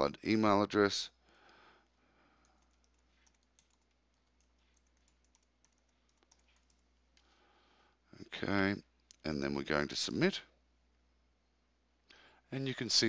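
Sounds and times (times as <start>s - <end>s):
faint keyboard typing: 1.2s - 7.4s, 9.0s - 9.3s.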